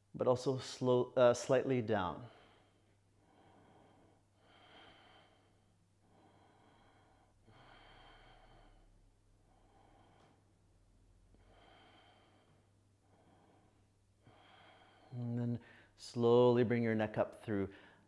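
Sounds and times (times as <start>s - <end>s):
person breathing slowly: 2.2s - 10.6s, 11.3s - 16.0s, 17.7s - 18.0s.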